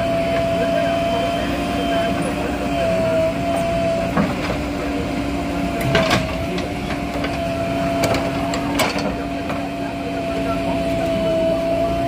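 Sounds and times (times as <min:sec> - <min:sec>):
diesel engine with high whine: 0:00.0 - 0:12.0
sharp knocks and clanks: 0:05.8 - 0:07.4, 0:08.0 - 0:09.7.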